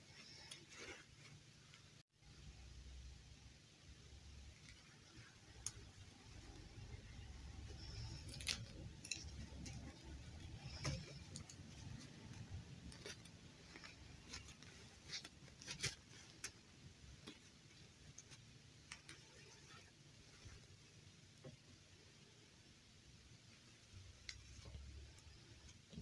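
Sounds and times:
light fabric rustling: 0.0s - 2.0s, 4.4s - 21.6s.

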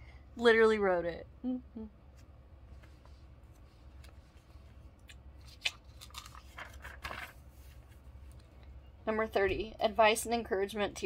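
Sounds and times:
low room hum: 0.0s - 11.0s
paper pages rustling: 2.7s - 8.5s.

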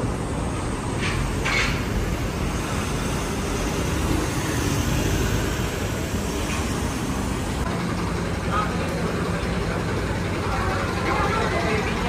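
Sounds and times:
rumble of engines and tyres: 0.0s - 12.0s
car driving past: 1.3s - 7.7s.

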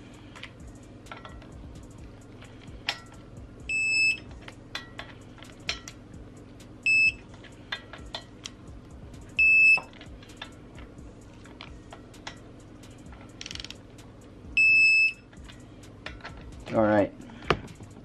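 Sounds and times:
torque wrench beeping: 2.9s - 4.3s, 6.8s - 7.3s, 9.3s - 10.0s, 14.6s - 15.3s
wrench clicking on bolts: 13.0s - 13.8s.

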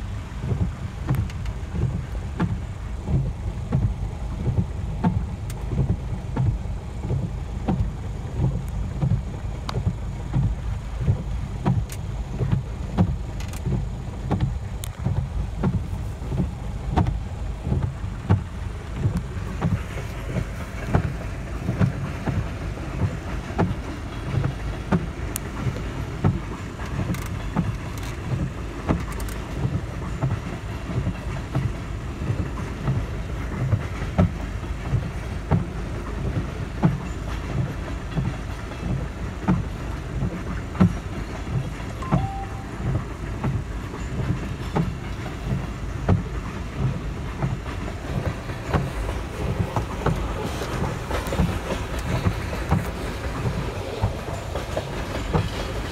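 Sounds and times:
sharp clicks and knocks of train wheels: 0.0s - 55.9s
train cars rumbling past: 14.0s - 28.8s, 29.4s - 55.9s.

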